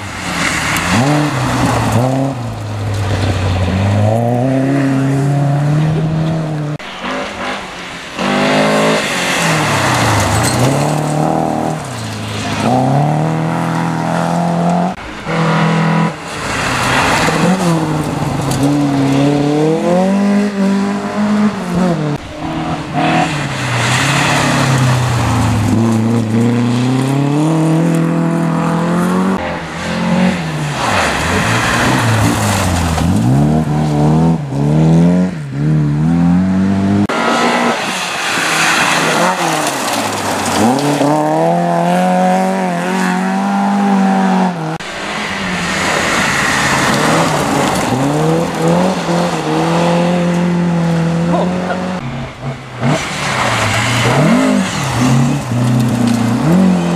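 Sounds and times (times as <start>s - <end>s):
rally car engines revving: 0.0s - 56.9s
tyres scrabbling on gravel: 9.0s - 13.1s, 30.4s - 33.9s, 37.9s - 41.7s, 52.7s - 56.9s.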